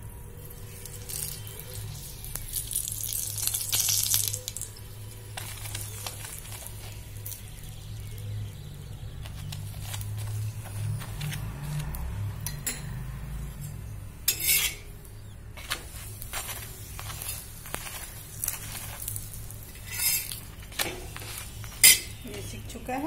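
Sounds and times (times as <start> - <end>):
oil sizzling on hot griddle: 0.0 - 12.8, 14.1 - 22.8
steel spoon scraping griddle: 9.2 - 22.8.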